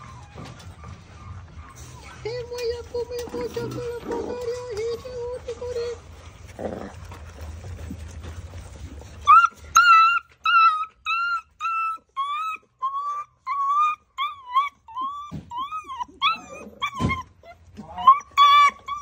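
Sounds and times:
puppy whining: 0:00.0 - 0:19.0.

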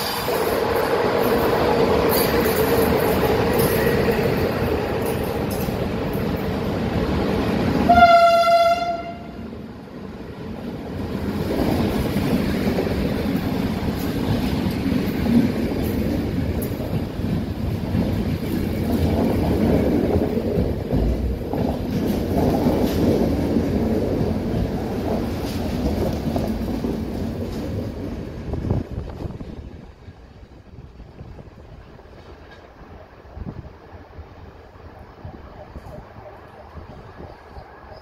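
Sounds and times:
train rumble and wheel clatter: 0:00.0 - 0:38.0
train horn toot: 0:07.8 - 0:09.5.

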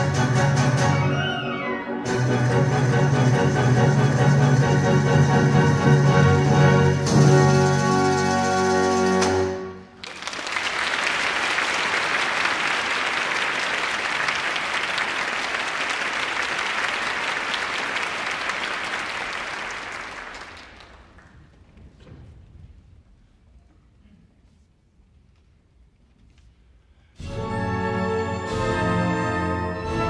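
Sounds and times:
audience applause: 0:10.0 - 0:21.4.

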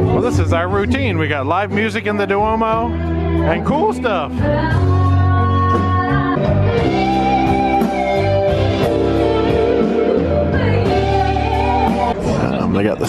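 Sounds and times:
bass line: 0:00.0 - 0:13.0
keyboards: 0:00.0 - 0:13.0
electric guitar: 0:02.8 - 0:12.6.

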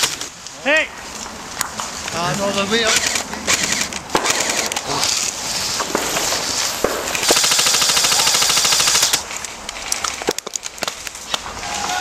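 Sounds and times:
airsoft rifles firing bursts: 0:02.8 - 0:09.2.

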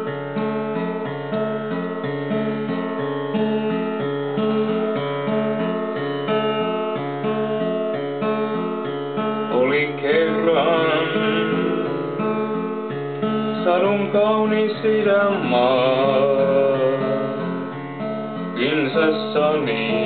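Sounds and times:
acoustic guitar strumming: 0:00.0 - 0:20.0
person singing: 0:09.5 - 0:12.7, 0:13.6 - 0:17.8, 0:18.6 - 0:20.0.

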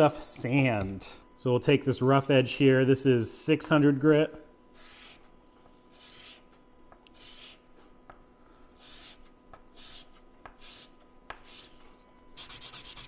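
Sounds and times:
rod rubbed on sandpaper: 0:04.8 - 0:05.3, 0:05.9 - 0:07.7, 0:08.8 - 0:13.0.

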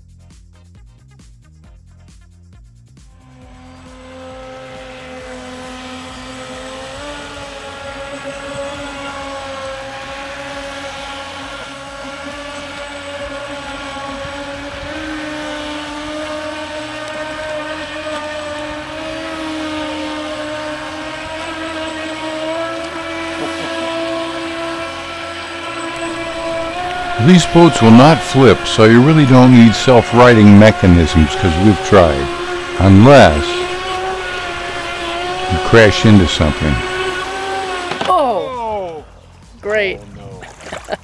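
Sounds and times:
toy speedboat motor whine: 0:03.2 - 0:39.2.

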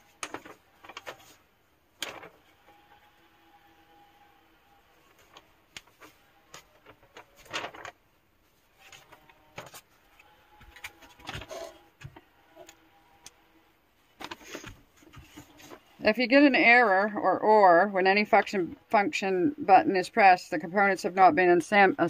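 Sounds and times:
paper rustling and crinkling: 0:00.0 - 0:03.2, 0:04.7 - 0:12.8, 0:14.2 - 0:16.0.

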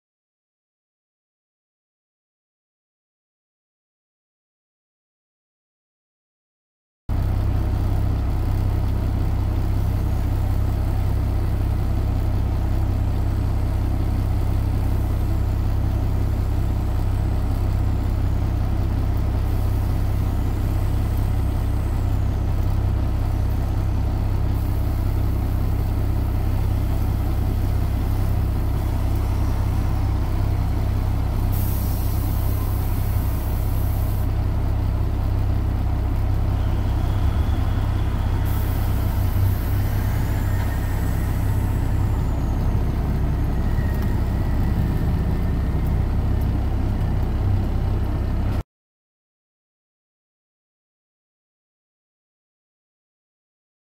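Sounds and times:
diesel engine idling: 0:07.1 - 0:48.6.

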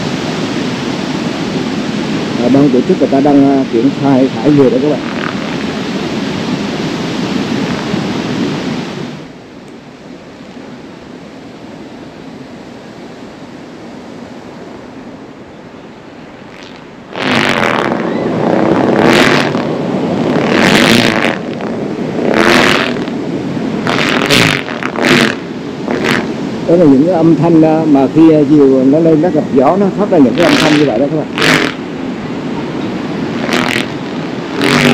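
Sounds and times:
wind rushing: 0:00.0 - 0:09.5, 0:16.2 - 0:28.4, 0:29.3 - 0:34.9
kite fabric flapping: 0:04.9 - 0:09.3, 0:16.4 - 0:26.6, 0:30.2 - 0:34.9.

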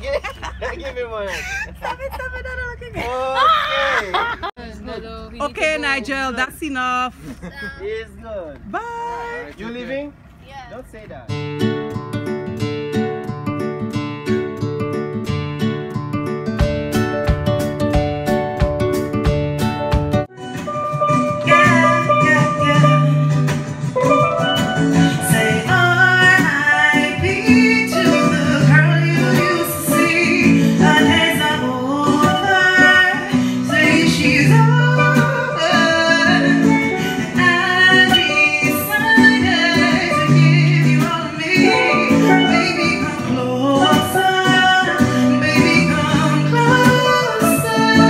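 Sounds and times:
strummed acoustic guitar: 0:11.3 - 0:48.0
woman singing: 0:21.4 - 0:48.0.

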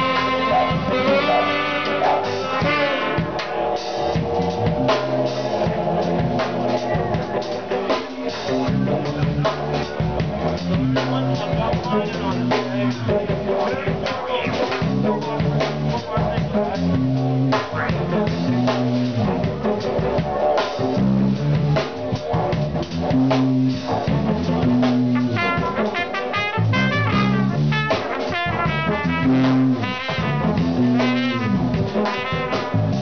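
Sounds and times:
trumpet fast wavering runs: 0:00.0 - 0:03.2
tenor saxophone: 0:00.0 - 0:03.5
bass riff: 0:00.0 - 0:33.0
drum kit: 0:00.0 - 0:33.0.

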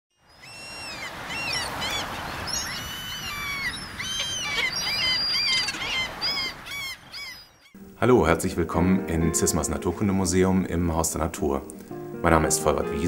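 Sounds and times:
gulls calling: 0:00.2 - 0:08.0.

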